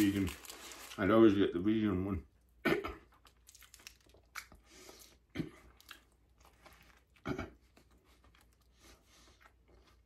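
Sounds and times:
person chewing and biting food: 3.1s - 10.0s.

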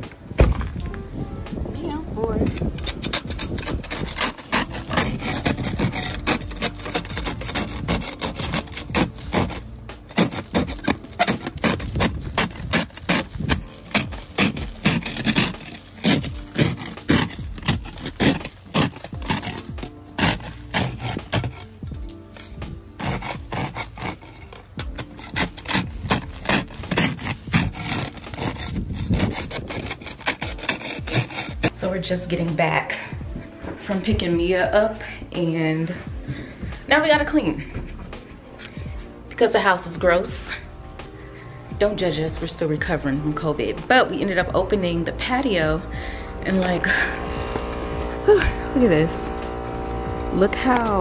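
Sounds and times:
spatula scraping ice: 1.9s - 31.8s, 46.2s - 51.0s
ice crunching and cracking: 2.0s - 31.7s.

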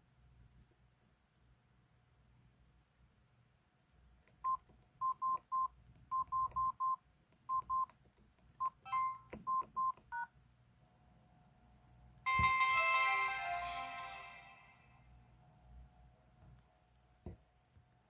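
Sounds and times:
phone keypad beeps: 4.4s - 7.9s, 8.6s - 10.3s
electronic power-off jingle: 12.3s - 15.0s.

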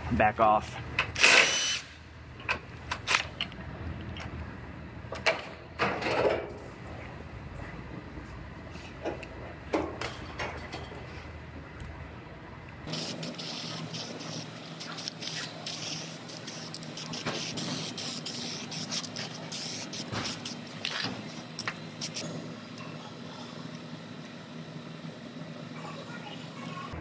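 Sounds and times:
aerosol spray can hissing: 12.9s - 20.6s.

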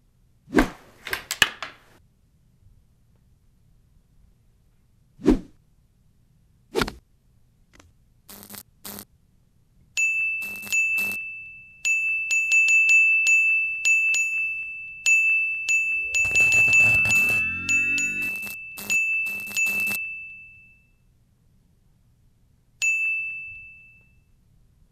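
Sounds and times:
falling swish: 16.0s - 18.4s
short noisy bursts: 16.0s - 18.5s.

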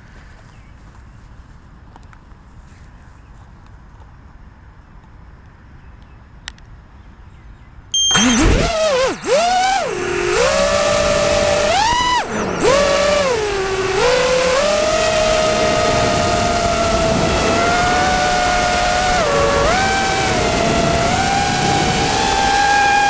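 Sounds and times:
drone motors whining: 8.0s - 23.0s.

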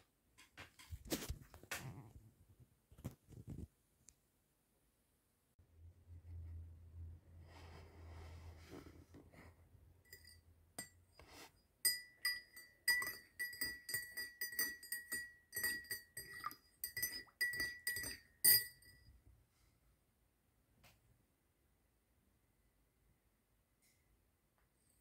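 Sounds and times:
spoon clinking in ceramic mug: 10.1s - 11.2s, 11.8s - 19.1s.

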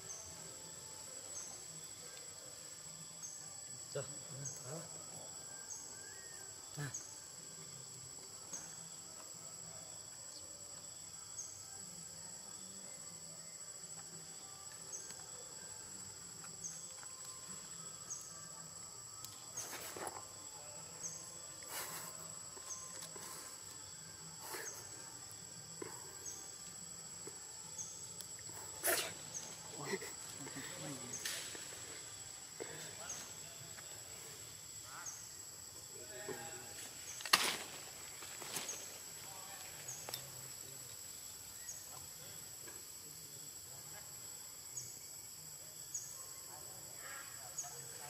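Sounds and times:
insect chorus shrilling: 0.0s - 9.0s, 9.9s - 48.0s
short insect chirp: 9.6s - 48.0s.

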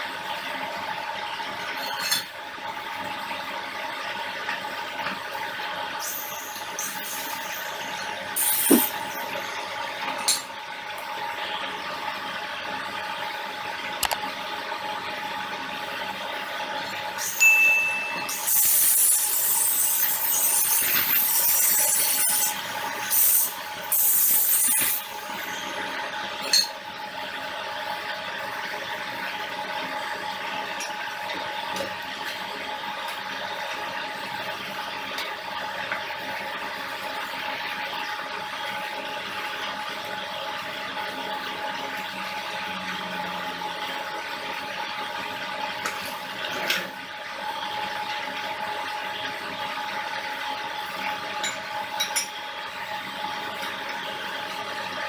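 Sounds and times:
angle grinder cutting metal: 6.0s - 9.4s, 18.3s - 25.6s
high-pitched mechanical whir: 6.0s - 10.4s, 17.1s - 26.7s.

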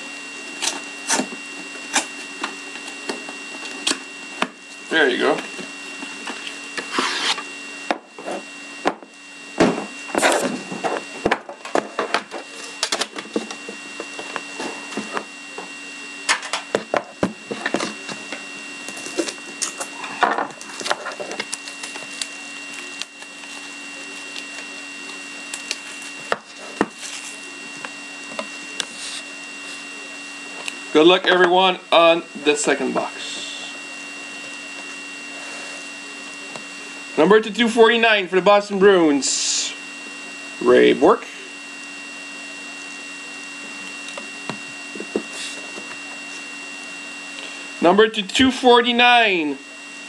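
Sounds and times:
faint electrical hum and whine: 0.0s - 50.0s
plastic wrap crinkling and tearing: 20.6s - 27.4s.

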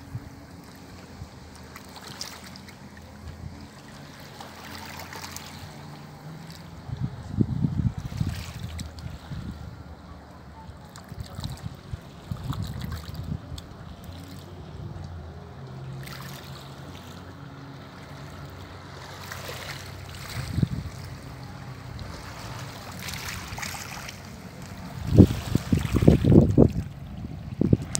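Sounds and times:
distant motorboat hum: 0.0s - 27.9s
waves washing on pebbles: 1.0s - 6.7s, 18.0s - 26.9s
wind buffeting microphone: 6.7s - 10.1s, 11.2s - 15.4s, 20.1s - 27.9s.

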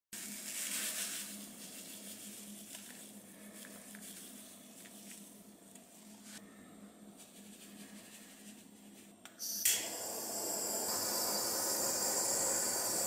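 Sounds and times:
sugar grains sprinkling: 0.2s - 5.4s
faint steady hum: 0.2s - 13.0s.

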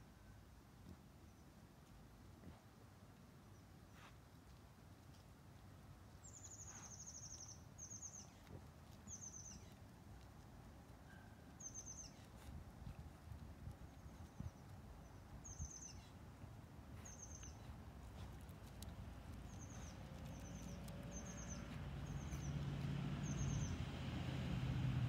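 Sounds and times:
songbird chirping: 5.9s - 25.0s.

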